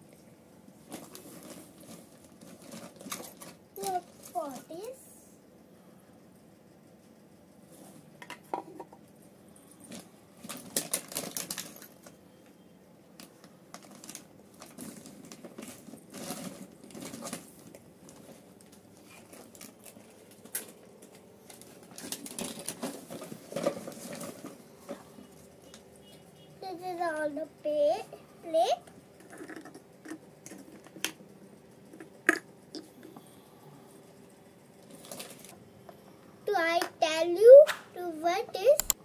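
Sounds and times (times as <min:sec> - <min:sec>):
plastic toy dishes clattering: 0:29.2 - 0:31.2.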